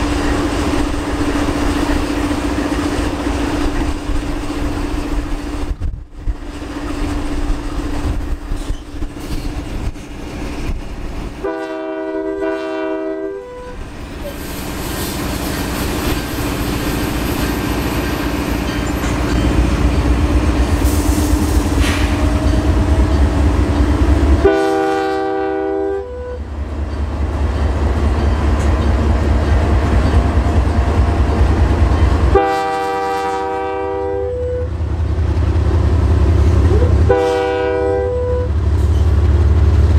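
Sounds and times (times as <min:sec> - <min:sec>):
locomotive air horn blasts: 0:11.4 - 0:13.8, 0:24.4 - 0:26.5, 0:32.3 - 0:34.8, 0:36.7 - 0:38.6
locomotive engine rumble: 0:13.4 - 0:39.9.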